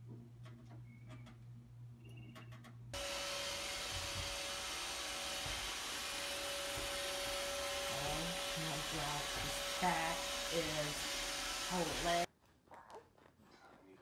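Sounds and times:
robot vacuum cleaner whirring: 3.0 - 12.3.

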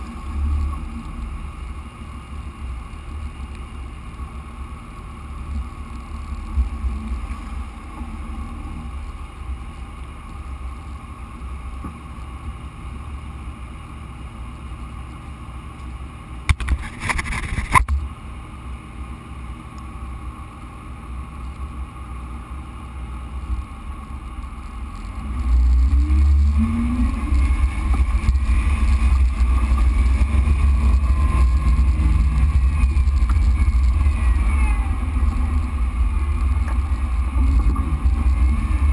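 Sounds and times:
engine rumble revving: 0.0 - 16.5, 20.1 - 38.9.

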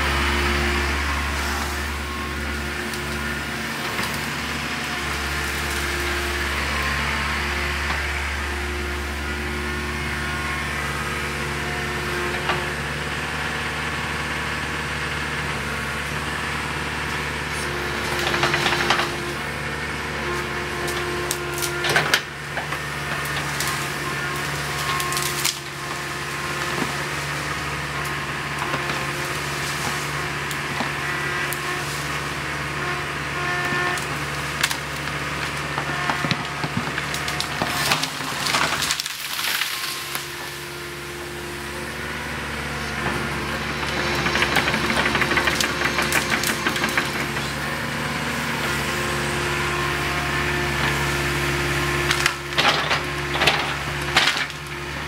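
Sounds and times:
excavator diesel engine running: 0.0 - 55.0
wood cracking and snapping: 20.4 - 32.6, 33.6 - 40.6, 42.9 - 48.0, 51.9 - 54.8.

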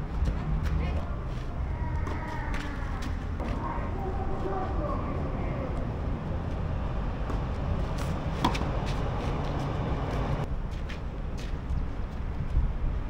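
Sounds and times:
low background rumble: 0.0 - 13.0
tennis racket hitting ball: 7.3 - 9.7
ball bouncing: 8.0 - 9.0.

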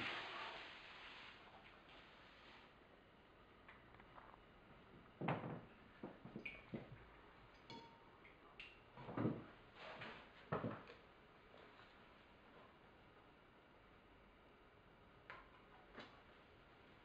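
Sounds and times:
ceramic clink: 7.6 - 8.2.

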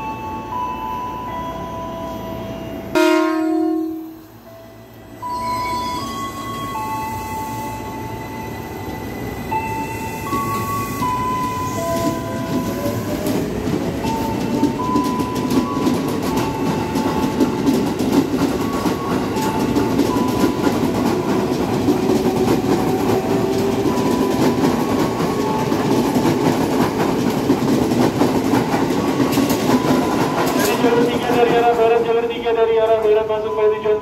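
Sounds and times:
train wheels clattering on rails: 9.5 - 33.2.

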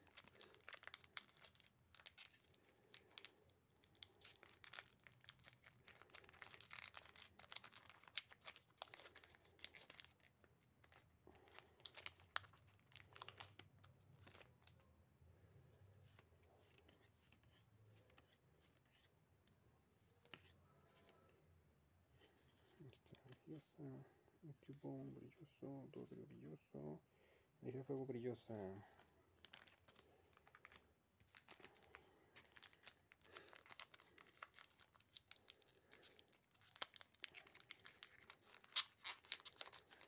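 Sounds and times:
foil wrapper crinkling: 0.0 - 14.6, 29.4 - 40.0.

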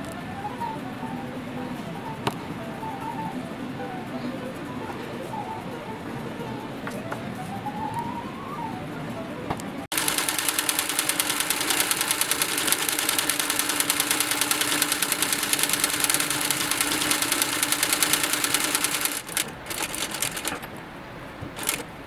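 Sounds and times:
sewing machine stitching fast: 9.9 - 20.7, 21.6 - 21.9.

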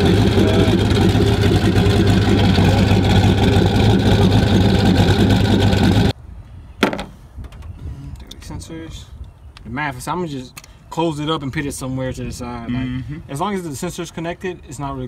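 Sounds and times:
car engine idling: 0.0 - 6.1
single knock: 6.8 - 7.1.

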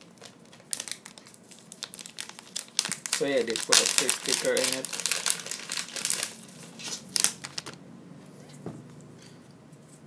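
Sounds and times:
plastic packet crinkling: 0.0 - 7.8.

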